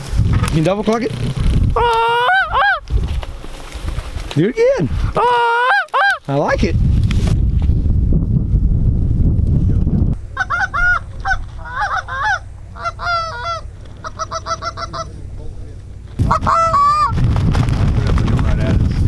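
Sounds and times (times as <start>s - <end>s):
wind buffeting microphone: 0.0s - 5.2s, 6.3s - 13.8s, 16.2s - 19.0s
geese honking: 1.8s - 2.8s, 5.2s - 6.2s, 10.3s - 15.4s, 16.2s - 17.2s.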